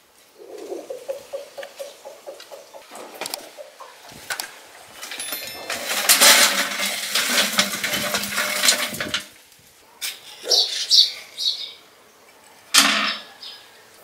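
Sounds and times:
charcoal clattering into metal drum: 4.3 - 9.4.

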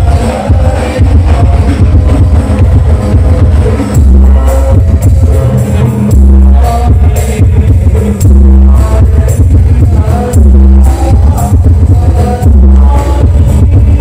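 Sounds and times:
deep bass drum boom: 0.0 - 5.4.

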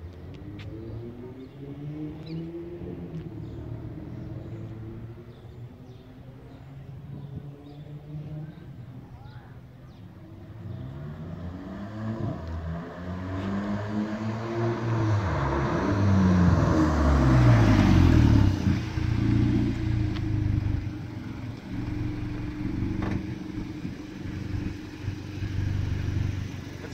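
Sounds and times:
car engine revving: 10.4 - 26.9.

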